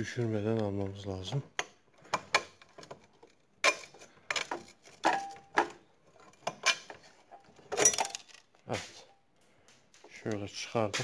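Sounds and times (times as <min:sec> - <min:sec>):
metal bracket clinking and knocking: 0:03.6 - 0:08.5.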